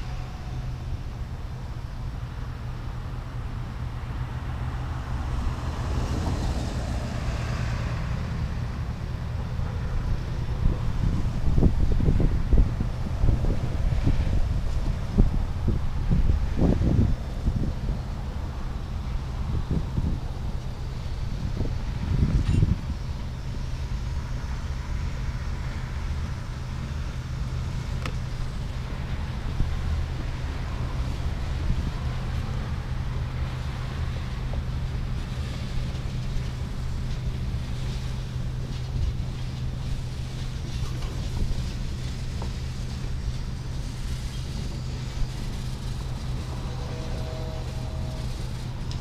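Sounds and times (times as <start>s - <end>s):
locomotive low rumble: 0.0s - 49.0s
vehicle hiss: 0.0s - 49.0s
wind buffeting microphone: 5.0s - 49.0s
wind on microphone: 9.6s - 24.5s.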